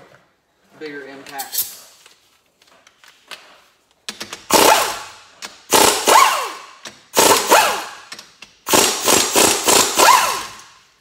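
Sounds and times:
impact wrench hammering: 0:04.1 - 0:10.8.

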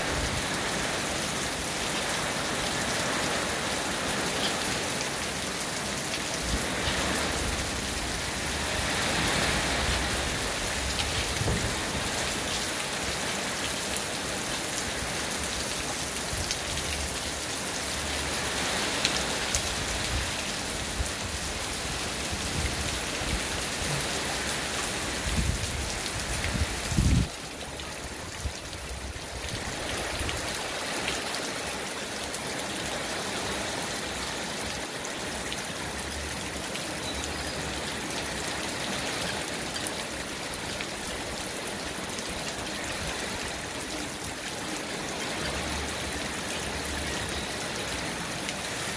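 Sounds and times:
steady rain: 0:00.0 - 0:48.9.

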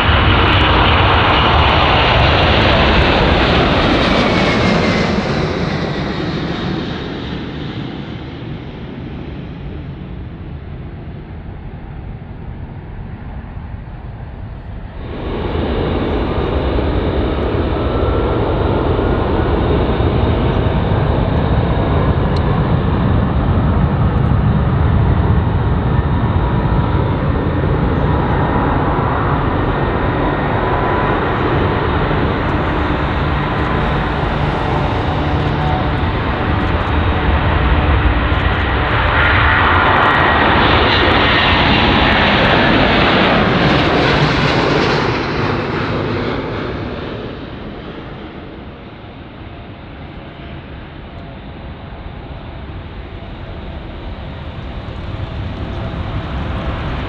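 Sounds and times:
jet engines at takeoff power: 0:00.0 - 0:57.0.

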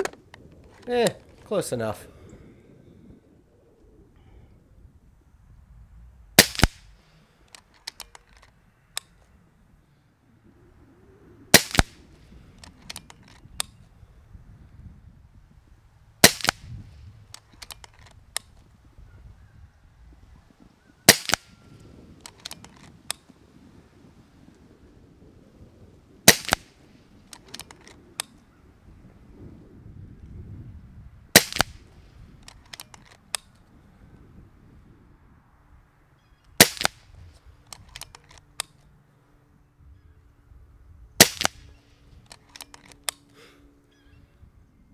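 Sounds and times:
metallic clicks of rifle action: 0:00.0 - 0:01.6, 0:06.4 - 0:09.4, 0:11.6 - 0:13.9, 0:16.2 - 0:18.7, 0:21.1 - 0:21.6, 0:22.2 - 0:23.3, 0:26.3 - 0:28.4, 0:32.4 - 0:33.7, 0:36.5 - 0:38.9, 0:41.2 - 0:43.4
air rifle shots cracking: 0:06.3 - 0:09.2, 0:11.5 - 0:13.8, 0:16.2 - 0:18.6, 0:21.0 - 0:23.2, 0:26.2 - 0:28.4, 0:31.3 - 0:33.5, 0:36.6 - 0:38.8, 0:41.2 - 0:43.2.

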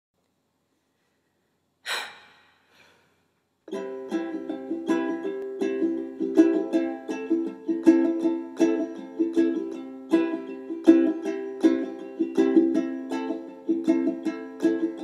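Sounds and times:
breathy rush: 0:01.8 - 0:03.2
picked acoustic guitar: 0:03.7 - 0:15.0.

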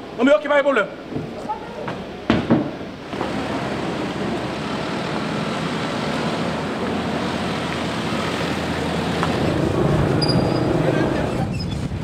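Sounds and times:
street traffic rush: 0:01.0 - 0:12.0.

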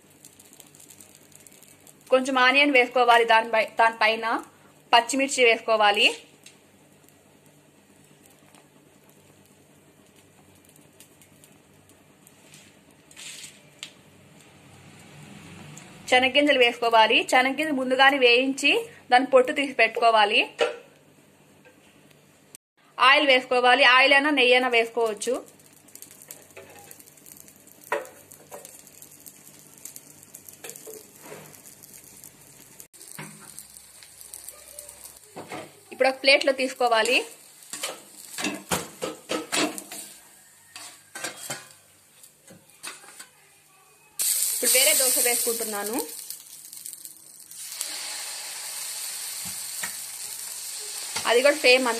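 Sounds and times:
batter sizzling on hot griddle: 0:00.0 - 0:20.0, 0:23.4 - 0:43.2, 0:44.2 - 0:51.9.

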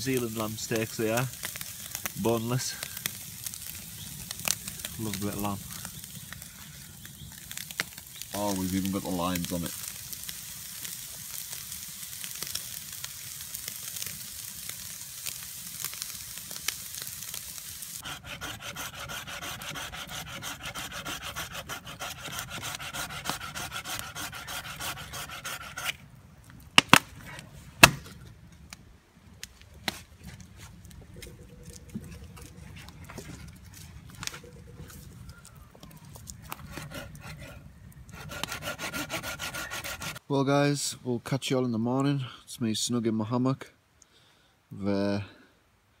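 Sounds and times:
meat sizzling on a grill: 0:00.0 - 0:25.6
blade rasping through log: 0:18.0 - 0:26.0, 0:36.5 - 0:40.2
sharp cracks: 0:25.8 - 0:27.2, 0:27.8 - 0:30.2.

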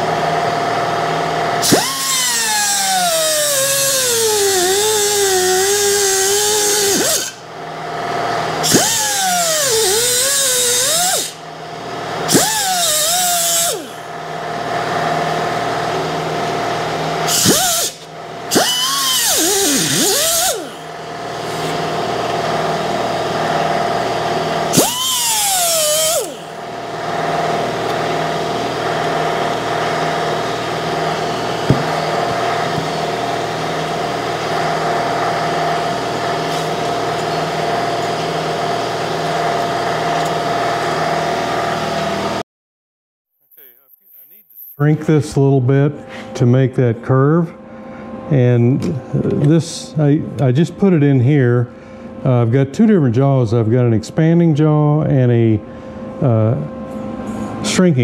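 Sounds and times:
pneumatic cut-off wheel cutting metal: 0:01.6 - 0:07.4, 0:08.6 - 0:11.4, 0:12.3 - 0:14.1, 0:17.2 - 0:21.8, 0:24.7 - 0:26.6, 0:36.4 - 0:38.3.

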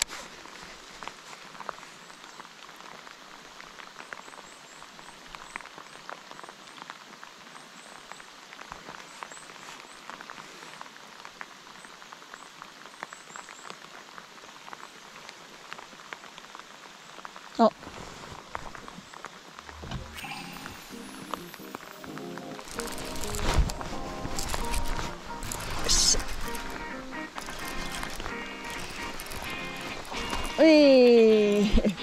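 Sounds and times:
heavy rain on water: 0:00.0 - 0:32.0
faint high chirps: 0:20.0 - 0:22.1.

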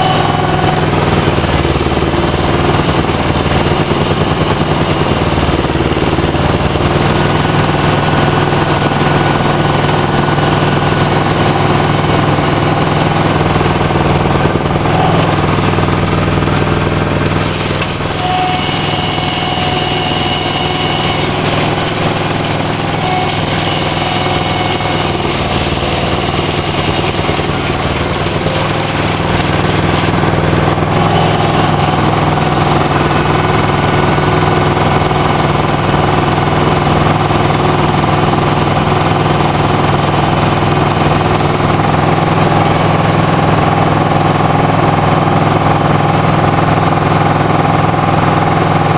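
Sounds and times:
high whining tones: 0:00.0 - 0:37.5
boat engine running: 0:00.0 - 0:48.9.

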